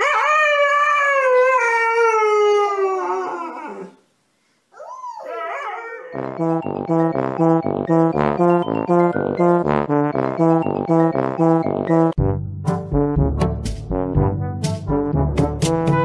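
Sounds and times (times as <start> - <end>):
dog howling: 0.0 - 4.0, 4.8 - 6.2
bouncy music with beat: 6.3 - 16.0.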